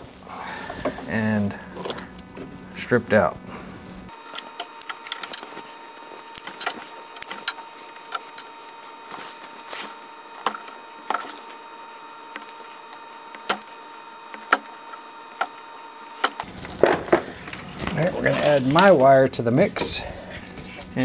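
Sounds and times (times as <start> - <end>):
wire stripper clicks and snips: 12.4 - 14.7.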